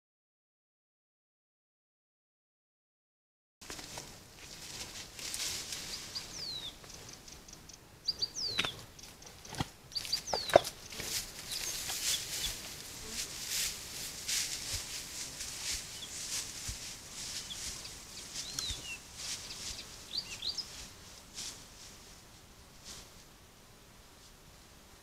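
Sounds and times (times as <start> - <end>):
moose rustling through grass: 3.6 - 7.4, 8.1 - 23.4.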